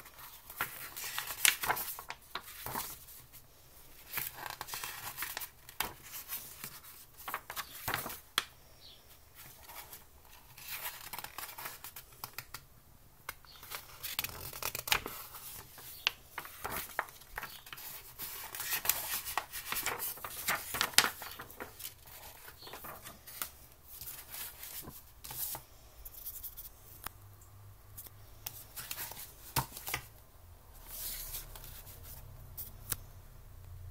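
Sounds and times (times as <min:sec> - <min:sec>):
paper pages rustling and turning: 0:00.0 - 0:08.5, 0:09.4 - 0:12.6, 0:13.4 - 0:26.7, 0:28.0 - 0:30.1, 0:30.8 - 0:32.8.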